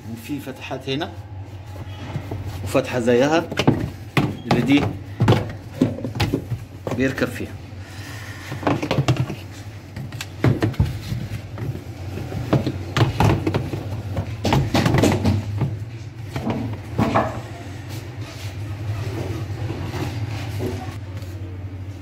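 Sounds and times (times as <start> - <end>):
steady low hum: 0.0 - 22.0
plastic parts knocking and clicking: 3.4 - 7.3, 8.5 - 17.3.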